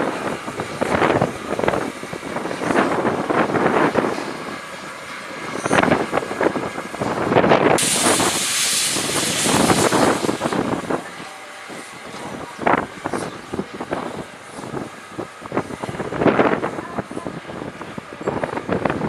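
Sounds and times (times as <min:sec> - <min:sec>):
steam locomotive exhaust chuffs: 0:00.0 - 0:16.3
loud hiss of steam: 0:05.4 - 0:15.4.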